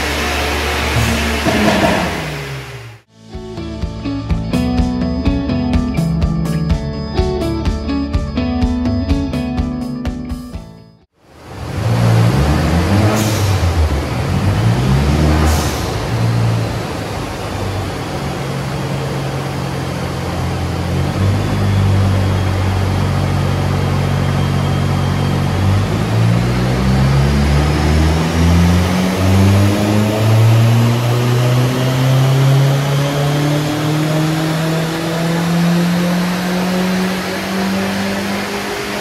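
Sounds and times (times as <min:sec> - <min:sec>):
car engine revving on a dyno: 0:00.0 - 0:03.1, 0:11.2 - 0:39.0
high whine: 0:00.0 - 0:08.9, 0:11.2 - 0:39.0.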